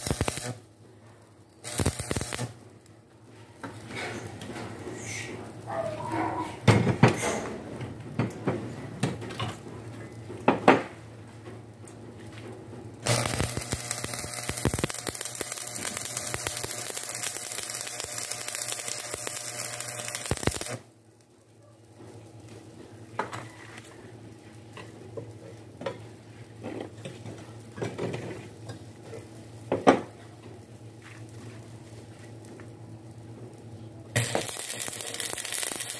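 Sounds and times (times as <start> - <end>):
welding arc crackling: 0.0 - 0.7, 1.6 - 2.9, 13.0 - 21.0, 34.1 - 35.9.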